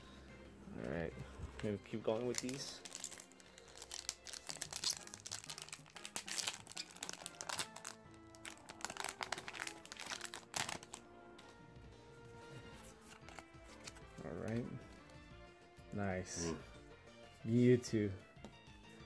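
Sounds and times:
quiet background music: 0.0s - 19.0s
plastic wrapper crinkling and tearing: 2.2s - 11.0s.

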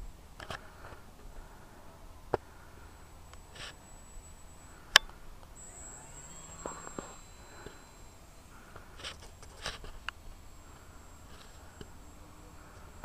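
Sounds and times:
electric model plane motor whine: 0.8s - 13.0s
sharp clicks: 3.0s - 12.0s.

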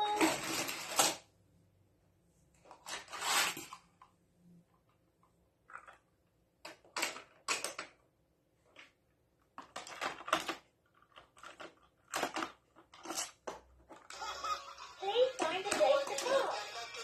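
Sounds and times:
plastic toy cars clacking: 0.0s - 1.3s, 5.6s - 14.4s, 15.1s - 16.7s.

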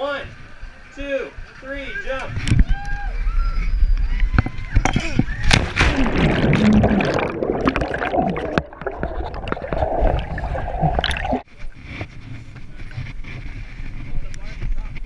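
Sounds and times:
underwater gurgling and bubbling: 5.6s - 11.4s.

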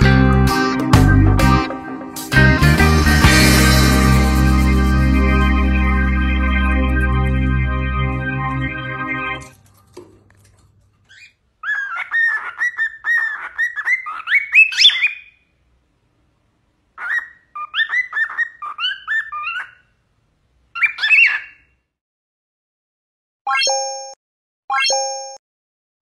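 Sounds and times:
cockatiel whistling: 11.1s - 15.4s, 17.0s - 19.8s.

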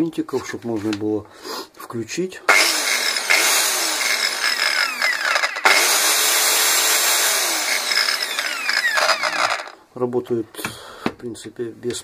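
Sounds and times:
belt sander motor running: 2.5s - 9.8s.

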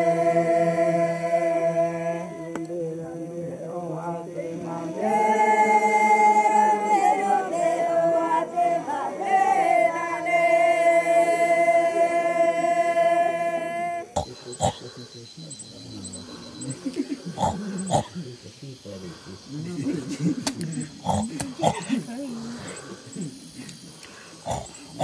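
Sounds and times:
group singing a chant: 0.0s - 14.8s.

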